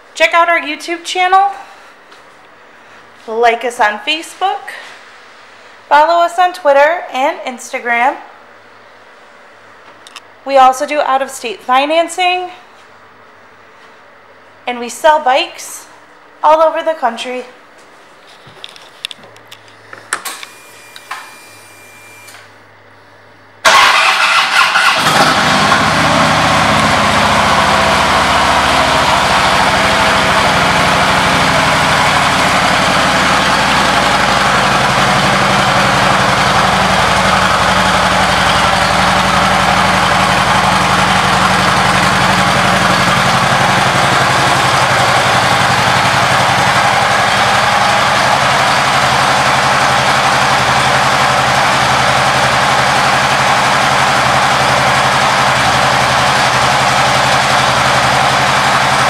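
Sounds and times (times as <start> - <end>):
motorcycle engine starting and idling: 23.6 - 59.0.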